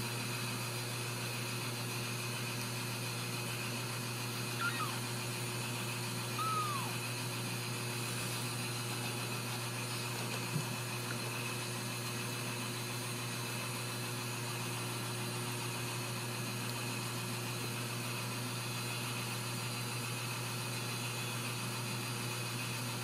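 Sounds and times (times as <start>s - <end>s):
low hum with hiss: 0.0s - 21.4s
kitten mewing: 4.6s - 5.1s, 6.4s - 7.0s.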